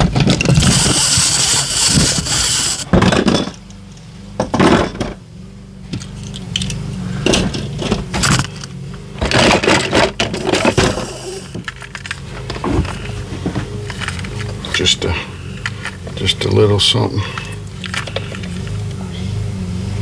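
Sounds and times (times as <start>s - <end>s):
plastic toys clattering: 0.0s - 3.6s, 6.0s - 16.0s, 17.4s - 18.8s
steady low hum: 0.3s - 20.0s.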